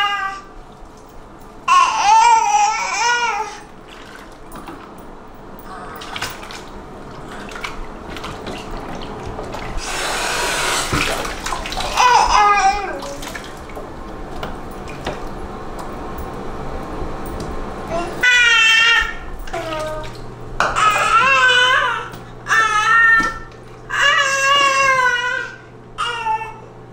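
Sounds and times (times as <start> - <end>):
baby babbling: 0.0 - 0.5, 1.7 - 3.7, 11.9 - 13.2, 17.9 - 26.7
bath water splashing: 3.2 - 4.9, 5.7 - 15.9, 17.4 - 25.1.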